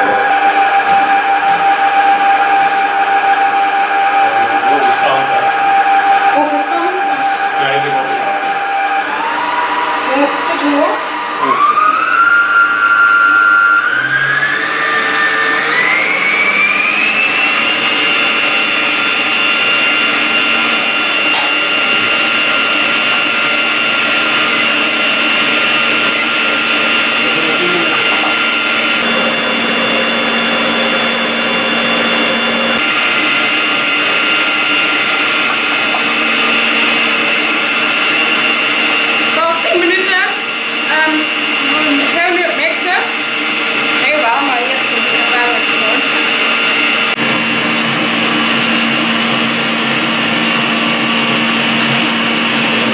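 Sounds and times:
stand mixer whining: 0.0s - 52.9s
whisk beating batter: 14.6s - 39.4s.

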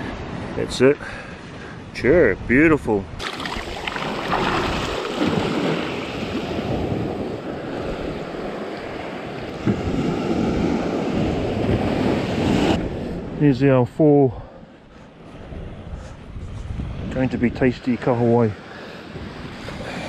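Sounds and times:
wind buffeting the microphone: 1.9s - 13.7s, 15.2s - 20.0s
water swirling in the shallows: 3.2s - 12.8s
surf washing up the beach: 3.2s - 13.4s.

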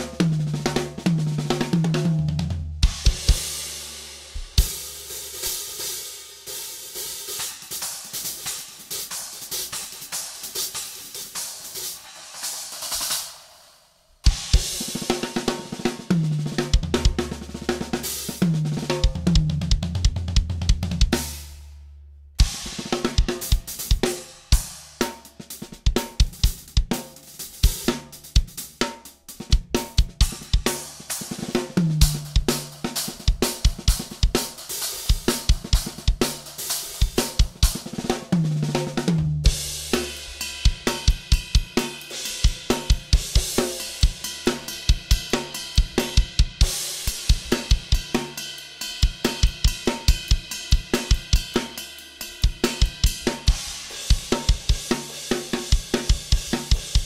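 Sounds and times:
drum kit groove: 0.0s - 57.0s.

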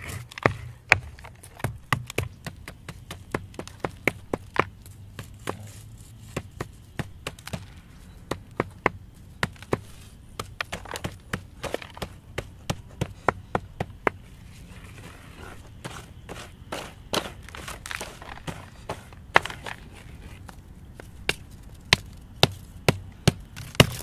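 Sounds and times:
rock scraping on stone: 0.0s - 1.8s
rock chunks clicking together: 23.5s - 24.0s.

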